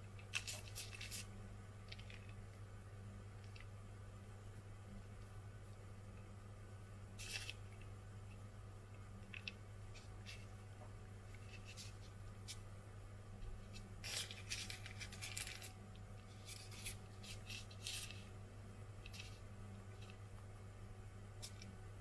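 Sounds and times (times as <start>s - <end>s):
parchment paper crinkling: 0.1s - 2.5s, 7.2s - 7.9s, 9.2s - 10.5s, 11.2s - 12.6s, 13.5s - 18.4s, 19.0s - 20.3s.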